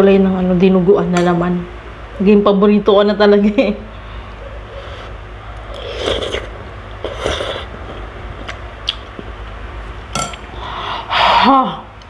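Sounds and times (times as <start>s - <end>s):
noodles slurped: 5.6s - 8.6s.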